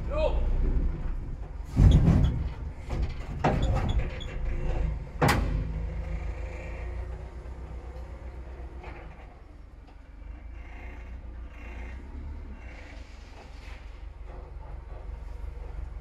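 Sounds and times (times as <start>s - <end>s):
metal knocks and clatter: 0.7s - 6.2s.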